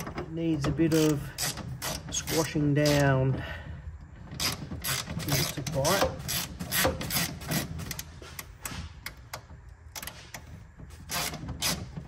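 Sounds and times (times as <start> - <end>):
hand ratchet clicking: 0.0 - 3.2, 4.3 - 12.0.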